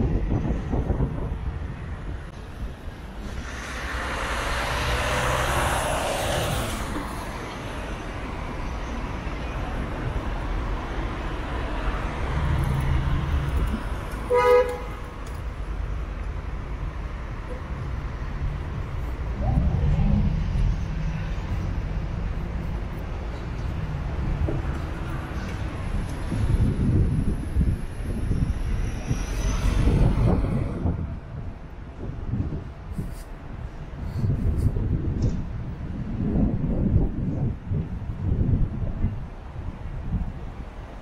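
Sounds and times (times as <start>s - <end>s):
street traffic rumbling: 0.0s - 41.0s
vehicle passing: 3.1s - 8.6s
vehicle horn toot: 14.2s - 15.0s.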